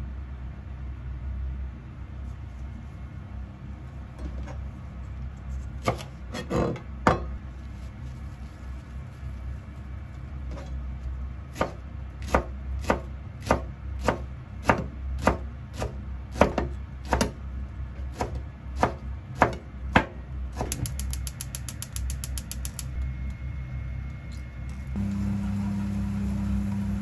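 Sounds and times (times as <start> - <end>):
knife chopping on cutting board: 11.5 - 17.4, 18.1 - 20.8.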